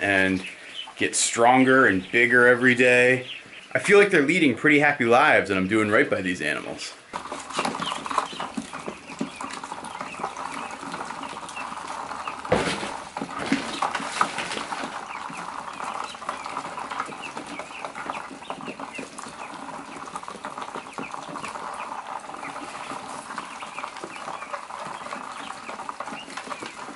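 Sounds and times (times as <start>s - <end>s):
ducklings peeping: 0.0s - 26.9s
pecking clicks and rustles: 7.1s - 26.9s.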